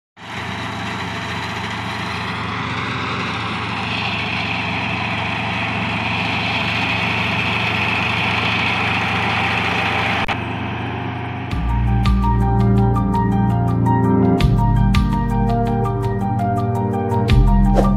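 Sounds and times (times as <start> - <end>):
cutting and threshing machinery: 0.2 - 11.8
combine harvester engine running: 0.2 - 13.9.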